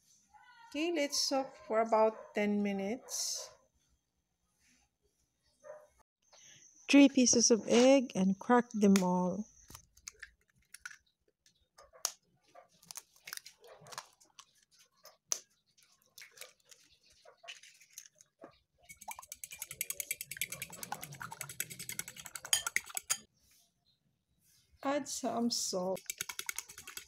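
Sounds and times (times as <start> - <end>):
fork beating eggs in bowl: 18.9 - 23.3, 26.0 - 27.0
eggs cracked on ceramic bowl: 19.0 - 23.2.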